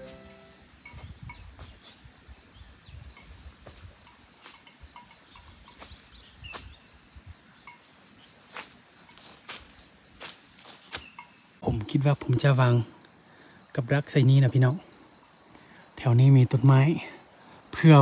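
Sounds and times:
footsteps crunching through leaves: 0.0s - 2.0s, 8.4s - 11.2s
insect chorus droning: 0.0s - 18.0s.

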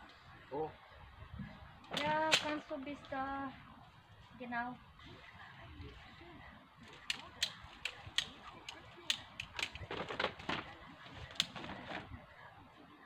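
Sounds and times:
branches and leaves rustling: 1.4s - 5.2s, 6.8s - 12.2s.

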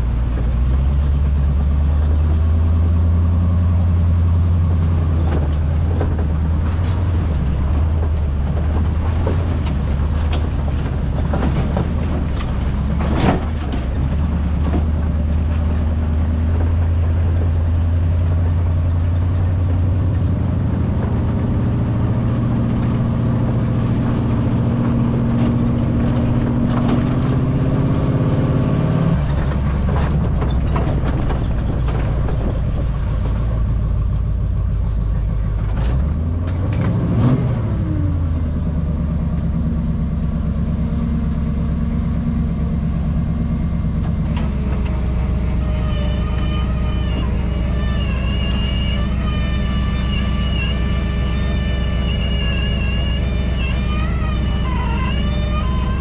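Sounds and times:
truck engine running under load: 0.0s - 56.0s
knocks and rattles: 4.6s - 34.4s.

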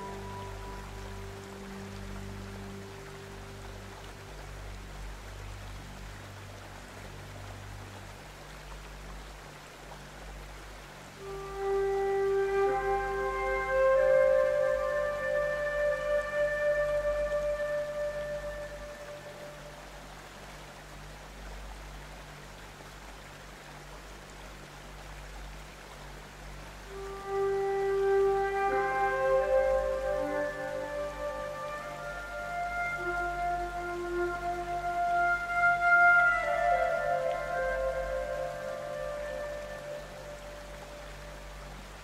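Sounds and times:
flute melody: 0.0s - 4.0s, 11.1s - 19.9s, 26.9s - 41.6s
sustained musical notes: 0.0s - 5.9s, 11.1s - 20.0s, 26.9s - 41.9s
rushing water: 0.0s - 42.0s.

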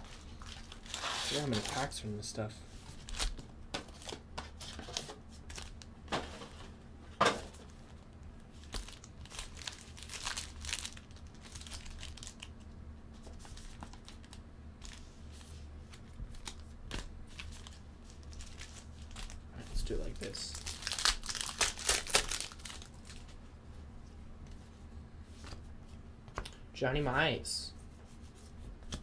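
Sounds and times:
card pack wrappers crinkling: 0.0s - 2.1s, 2.9s - 4.8s, 5.4s - 5.9s, 7.7s - 12.6s, 13.2s - 15.1s, 15.9s - 23.4s
wrapper ripping: 0.1s - 2.0s, 8.6s - 12.6s, 16.3s - 23.3s.

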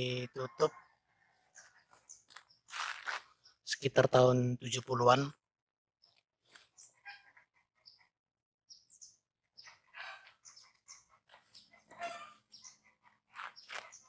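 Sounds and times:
distant animal calls: 6.8s - 8.1s, 9.6s - 14.0s.

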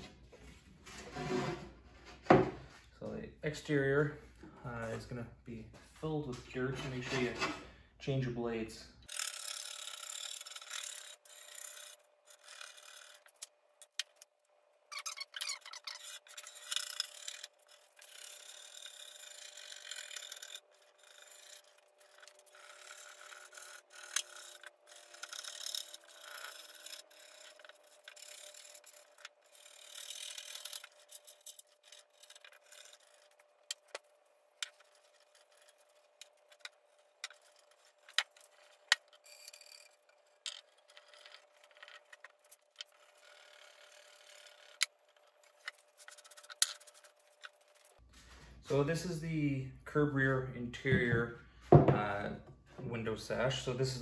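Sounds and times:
razor blade scraping glass: 9.1s - 14.2s, 14.9s - 48.0s.

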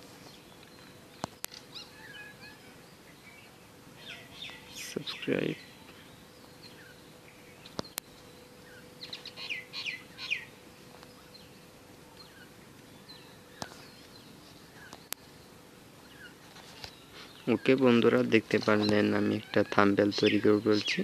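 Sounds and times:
faint steady hum: 0.0s - 21.0s
small birds chirping: 0.0s - 21.0s
sharp clicks: 0.6s - 1.7s.

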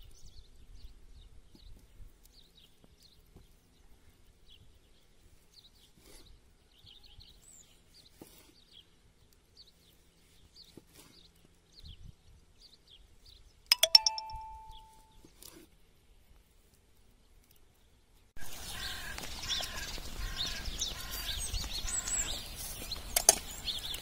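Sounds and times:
small birds chirping: 0.0s - 15.4s, 17.0s - 24.0s
ringing metal clink: 13.7s - 15.2s.

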